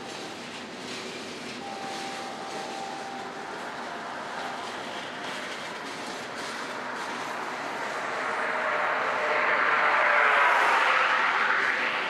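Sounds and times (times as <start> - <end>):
train wheels on rails: 0.0 - 12.0.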